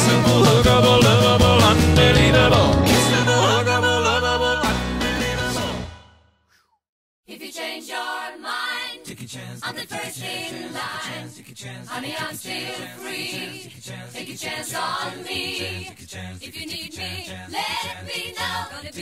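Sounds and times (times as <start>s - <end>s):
low sung bass part: 0.0s - 5.7s
a cappella group singing: 0.0s - 5.9s, 7.3s - 19.0s.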